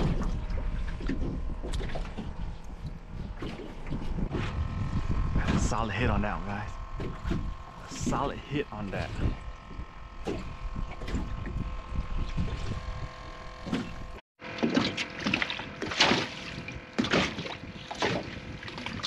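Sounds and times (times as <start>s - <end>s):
wind buffeting microphone: 0.0s - 14.2s
trolling motor hum: 0.0s - 19.0s
water slapping against hull: 0.0s - 19.0s.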